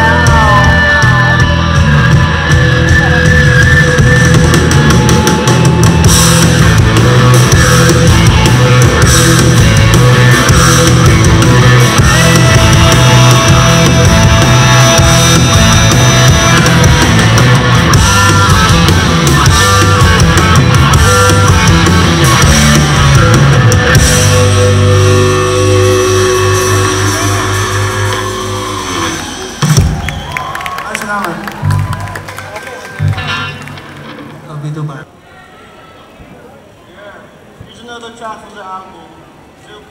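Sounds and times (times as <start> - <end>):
distorted electric guitars: 0.0 - 30.0, 31.6 - 35.0
bass guitar: 0.0 - 30.5, 31.5 - 34.7
drum kit: 0.0 - 30.5.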